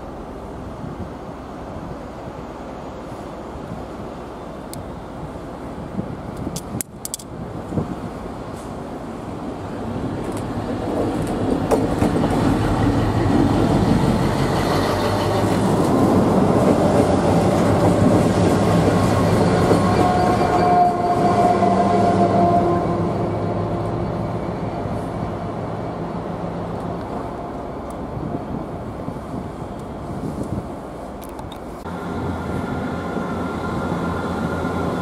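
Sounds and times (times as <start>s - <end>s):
diesel locomotive passing: 7.1s - 31.2s, 31.8s - 35.0s.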